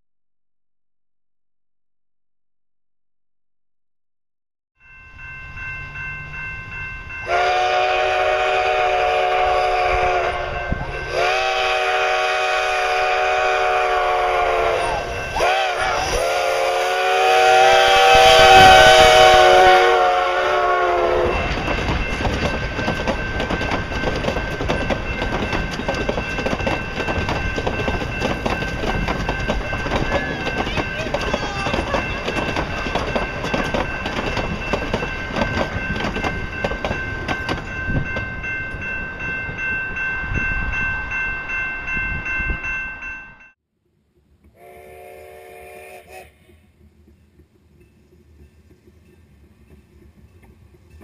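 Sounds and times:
steam locomotive whistle blasts: 0:07.2 - 0:21.6, 0:44.5 - 0:46.6
train wheels clicking over rail joints: 0:21.0 - 0:39.6, 0:46.1 - 0:51.0.

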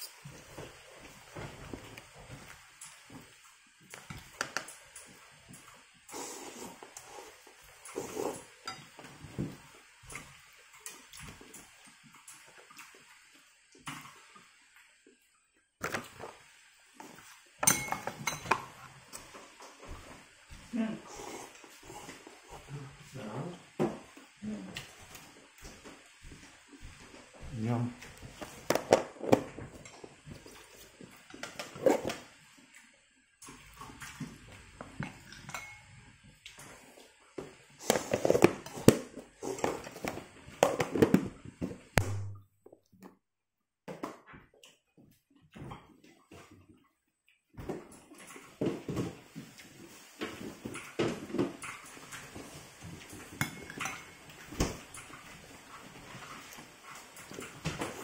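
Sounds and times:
slurping: 0:06.1 - 0:08.5
metal spoon clinking ceramic bowl: 0:17.6 - 0:18.6, 0:35.5 - 0:35.8.

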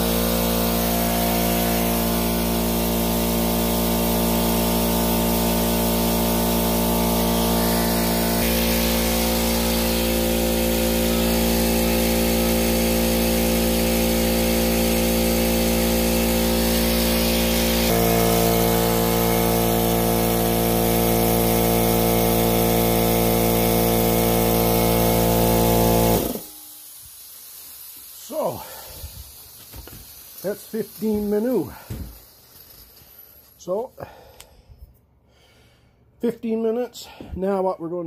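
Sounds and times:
air compressor motor hum: 0:00.0 - 0:34.4
air hissing from valve: 0:00.0 - 0:34.6.

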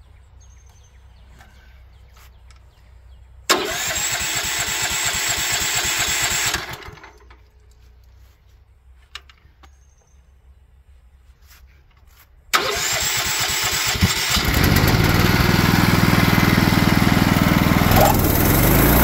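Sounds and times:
engine starter cranking: 0:03.5 - 0:07.4, 0:12.5 - 0:17.2.

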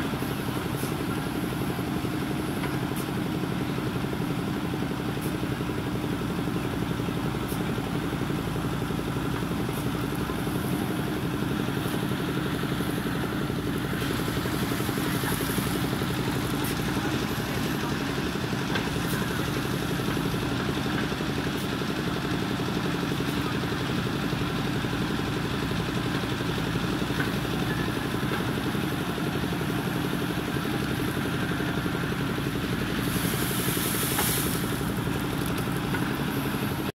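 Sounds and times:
diesel engine running: 0:00.0 - 0:36.9
brief hiss: 0:33.0 - 0:35.0.

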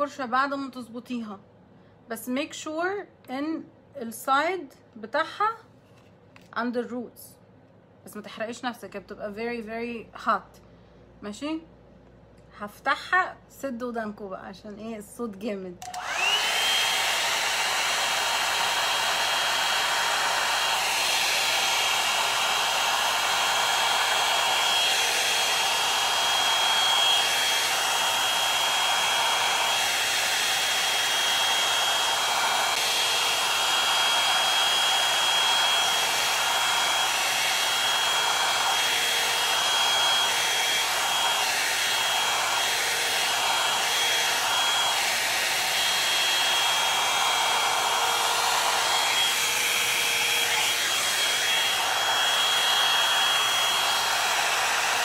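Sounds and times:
hot-air brush blowing with whine: 0:15.8 - 0:55.0.

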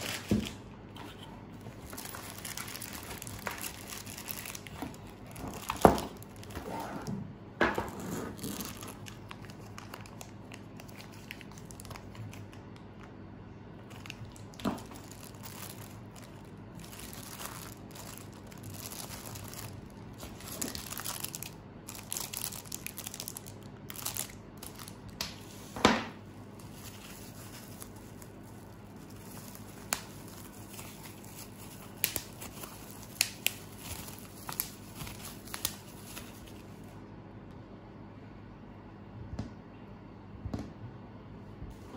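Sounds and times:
plastic bags crinkling: 0:00.0 - 0:00.7, 0:01.5 - 0:06.6, 0:08.3 - 0:13.0, 0:13.8 - 0:25.7, 0:26.6 - 0:36.9.

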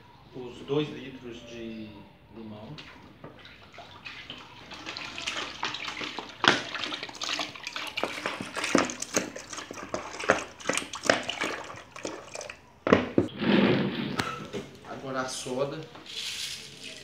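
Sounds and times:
juice pouring and glugging: 0:03.6 - 0:12.7.

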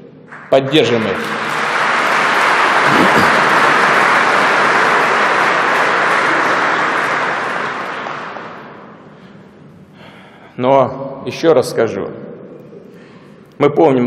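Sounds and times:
audience applauding: 0:00.3 - 0:09.4.

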